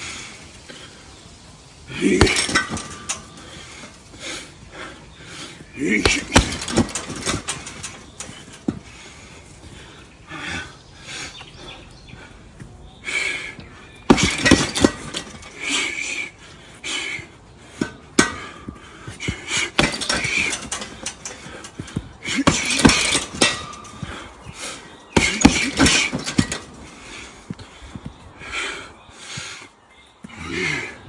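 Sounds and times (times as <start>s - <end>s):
hissed breaths: 0.0s - 31.0s
punches thudding on heavy bag: 2.0s - 3.3s, 5.8s - 8.7s, 14.1s - 15.7s, 17.8s - 24.3s, 25.2s - 26.9s.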